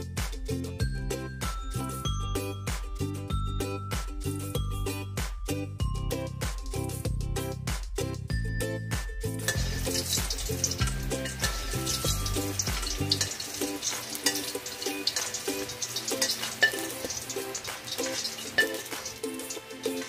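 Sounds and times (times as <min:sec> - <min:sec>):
background music: 0:00.0 - 0:20.0
hot oil sizzling and crackling: 0:09.0 - 0:20.0.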